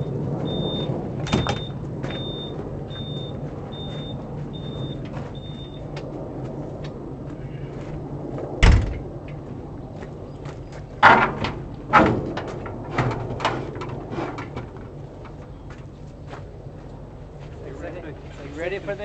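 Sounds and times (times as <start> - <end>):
high electronic beep: 0.5 - 5.8
loud bang: 8.6 - 9.0.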